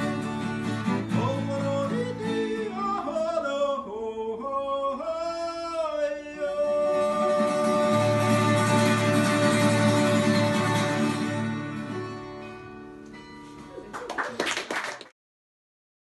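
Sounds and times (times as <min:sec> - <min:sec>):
man singing folk song: 0:00.0 - 0:11.6
acoustic guitars: 0:00.0 - 0:14.1.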